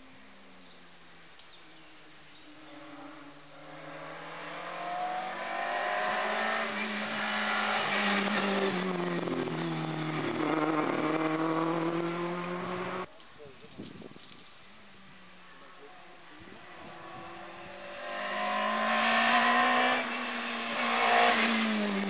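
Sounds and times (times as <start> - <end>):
race car engine passing: 2.4 - 13.1, 16.4 - 22.0.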